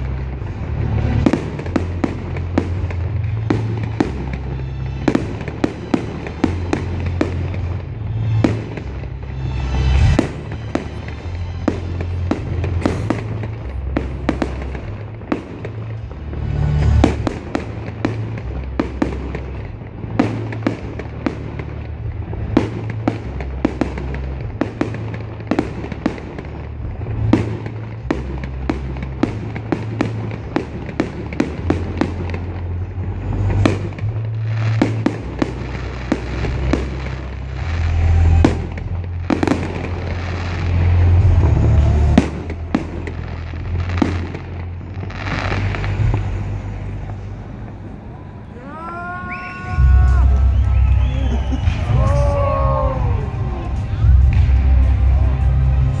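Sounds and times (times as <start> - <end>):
fireworks bangs and crackling: 0.0 - 56.0
loud music with heavy bass: 51.2 - 56.0.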